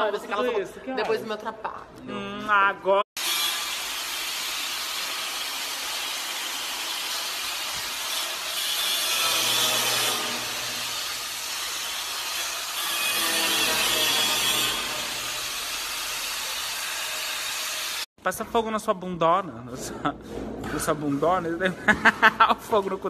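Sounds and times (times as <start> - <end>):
angle grinder cutting metal: 3.2 - 18.1.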